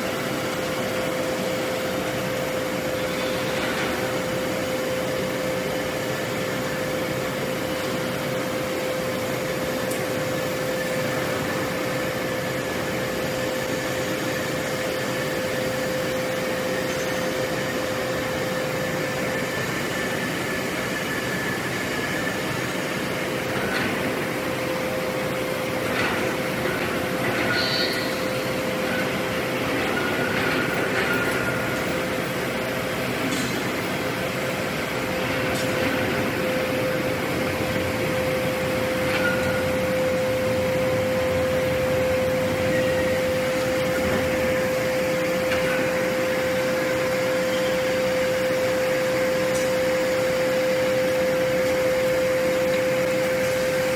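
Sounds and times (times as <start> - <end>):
blowers and machinery hum: 0.0 - 53.9
metallic clanks and squeals: 25.9 - 32.2, 38.8 - 40.2, 42.2 - 46.1.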